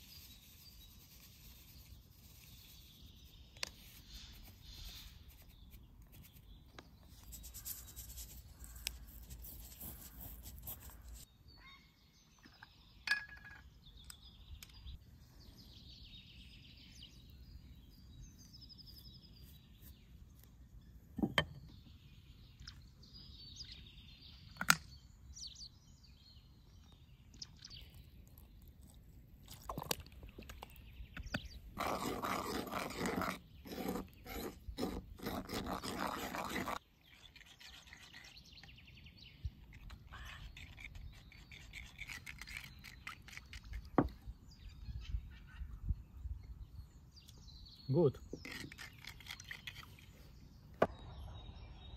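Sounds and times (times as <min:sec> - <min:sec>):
birds chirping: 0:30.1 - 0:51.9.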